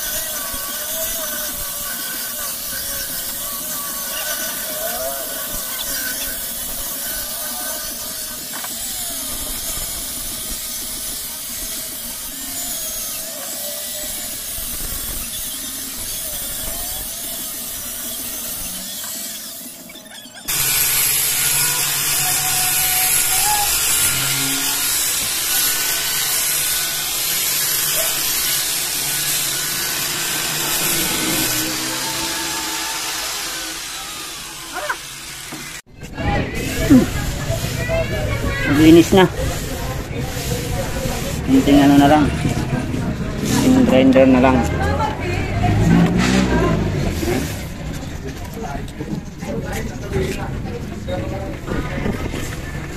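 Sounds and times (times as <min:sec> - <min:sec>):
angle grinder motor whine: 0:00.0 - 0:35.9
sanding disc rasping on wood: 0:00.0 - 0:35.9, 0:36.5 - 0:48.5.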